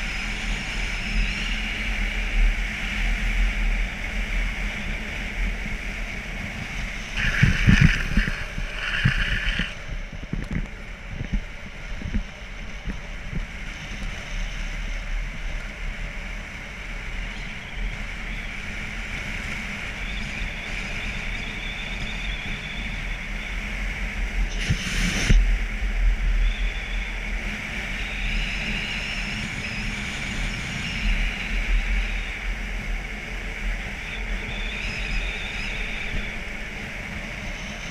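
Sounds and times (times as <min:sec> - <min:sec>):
wind rushing over microphone: 0:02.0 - 0:15.3
wheels rolling on asphalt: 0:02.7 - 0:23.0
scraping burst: 0:07.1 - 0:09.9.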